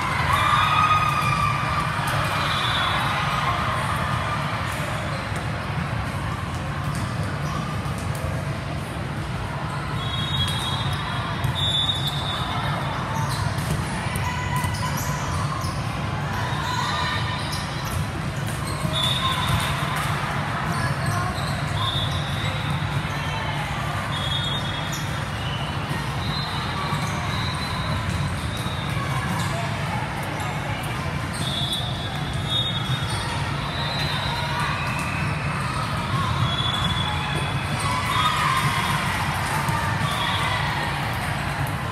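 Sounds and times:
chatter of players and spectators: 0:00.0 - 0:41.9
volleyballs struck and bouncing: 0:13.3 - 0:16.0, 0:17.6 - 0:23.0.

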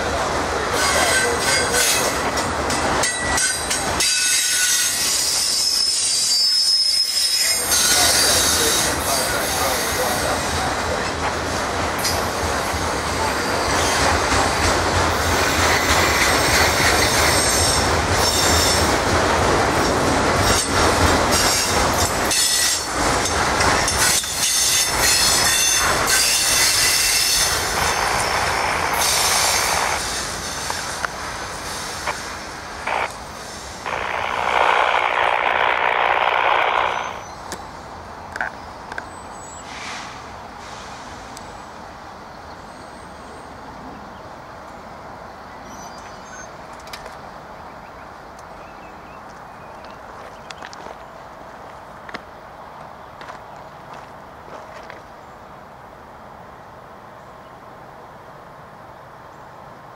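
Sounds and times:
train wheels rumbling on rails: 0:00.0 - 0:41.9
high wheel squeals: 0:03.4 - 0:10.1.

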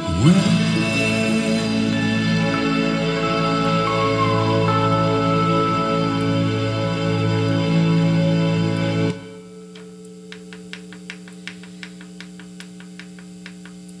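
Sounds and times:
country music with pedal steel: 0:00.0 - 0:09.4.

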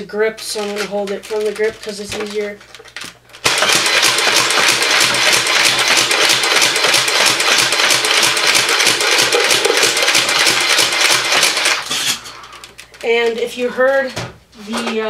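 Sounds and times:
toy blaster firing rattle: 0:03.4 - 0:12.0.

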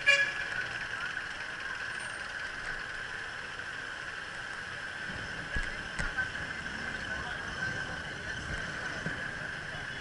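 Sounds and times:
city street traffic: 0:00.0 - 0:10.0.

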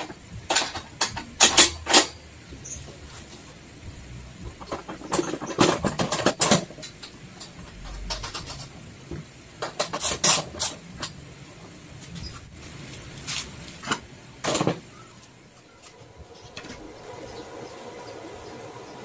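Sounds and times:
metal clicks and knocks: 0:04.5 - 0:11.2.

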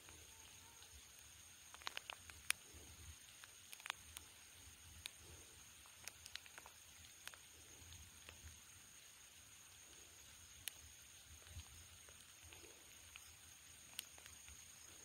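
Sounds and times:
faint high-pitched tone: 0:00.0 - 0:01.1
faint handling clicks: 0:00.8 - 0:04.3, 0:05.0 - 0:07.5, 0:11.4 - 0:15.0.

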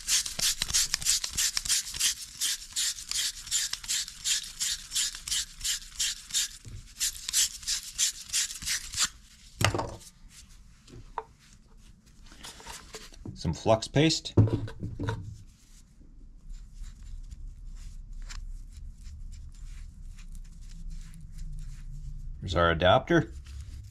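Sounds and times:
dull knock: 0:14.4 - 0:15.2.

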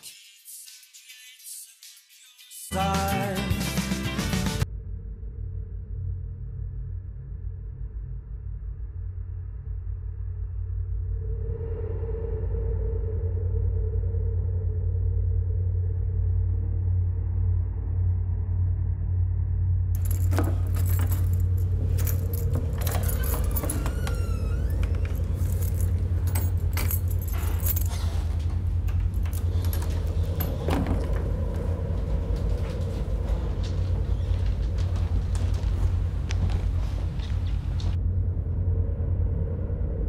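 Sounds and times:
low rumble: 0:04.7 - 0:40.0
door squeak: 0:20.0 - 0:35.2
keys jangling: 0:20.0 - 0:37.9.

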